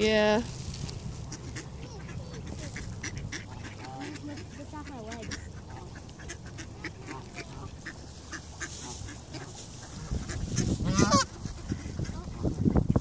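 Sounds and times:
wind rumbling on microphone: 0.0 - 3.8, 8.6 - 13.0
ducks and geese calling: 0.8 - 13.0.

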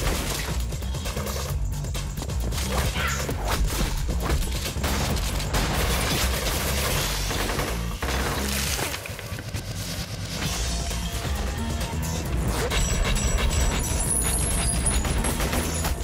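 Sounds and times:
electronic music with heavy bass: 10.3 - 16.0.

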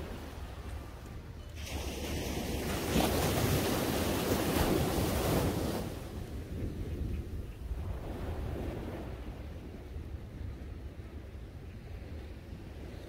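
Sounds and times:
wind rumble on microphone: 0.0 - 13.0
sea waves breaking on beach: 1.6 - 6.8, 7.7 - 10.1.

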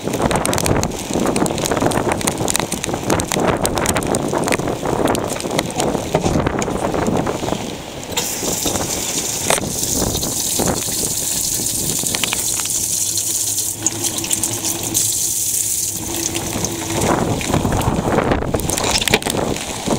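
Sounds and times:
wind buffeting microphone: 0.0 - 19.9
water jetting hiss: 8.1 - 17.7.

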